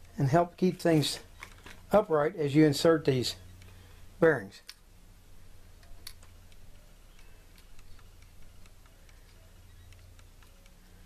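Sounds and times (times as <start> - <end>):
steady low hum: 0.0 - 11.0
small metal bearing clicks: 5.8 - 11.0.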